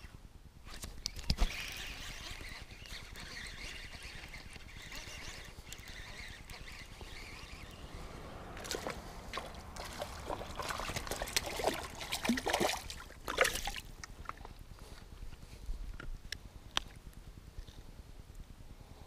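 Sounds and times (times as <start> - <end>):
fish splashing in shallow water: 5.7 - 14.5.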